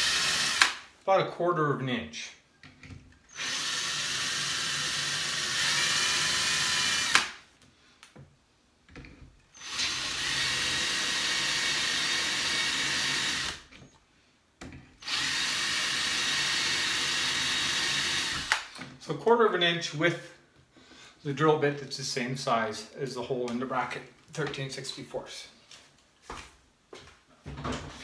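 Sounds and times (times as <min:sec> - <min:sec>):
cordless drill boring into wood: 0:00.0 - 0:00.8, 0:03.3 - 0:07.4, 0:09.5 - 0:13.8, 0:15.0 - 0:18.7.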